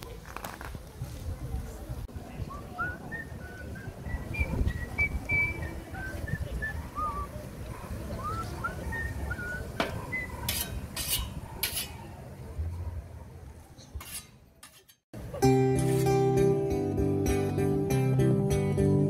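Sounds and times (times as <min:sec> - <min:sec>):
whetstone sharpening scythe blade: 0:10.4 - 0:12.0, 0:13.9 - 0:15.0.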